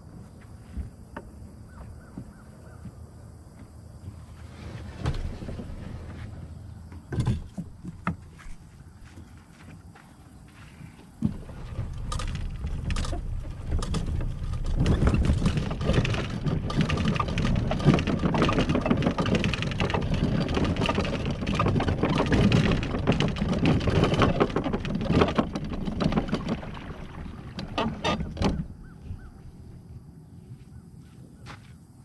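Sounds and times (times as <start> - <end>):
boat running on water: 11.2 - 29.2.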